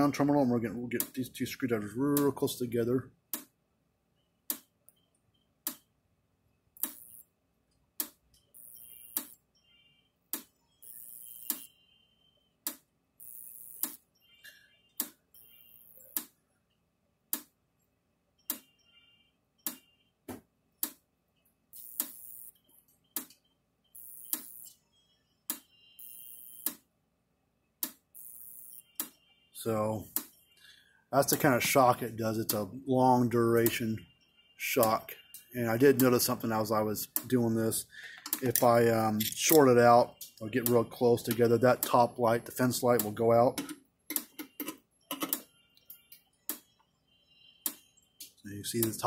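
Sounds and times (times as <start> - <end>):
electric fencer clicking: 6.8 - 7.3, 8.0 - 9.4, 10.3 - 11.7, 12.7 - 14.0, 21.8 - 22.6, 24.0 - 24.8.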